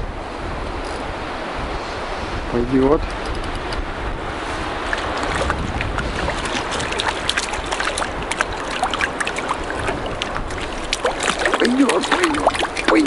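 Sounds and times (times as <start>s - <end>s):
water rushing: 3.8s - 13.0s
fish splashing in water: 4.8s - 13.0s.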